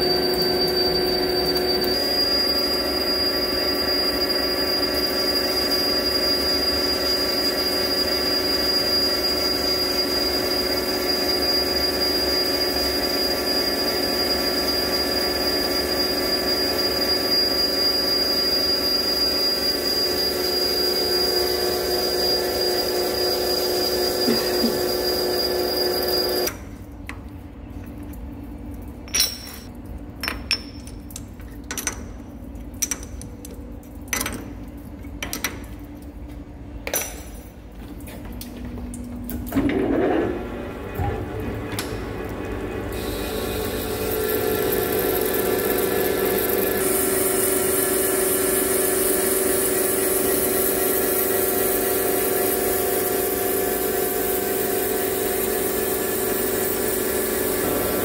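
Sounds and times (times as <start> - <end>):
lathe machining whine: 0.0 - 26.6, 39.5 - 58.0.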